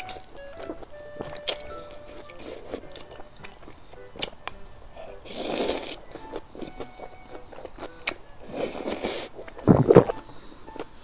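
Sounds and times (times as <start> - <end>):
faint background music: 0.0 - 11.0
noodle slurp: 5.3 - 6.0.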